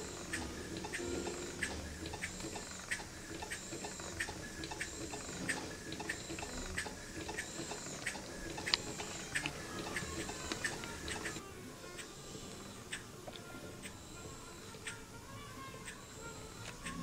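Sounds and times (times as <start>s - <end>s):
model engine clicking: 0.0s - 11.4s, 15.8s - 17.0s.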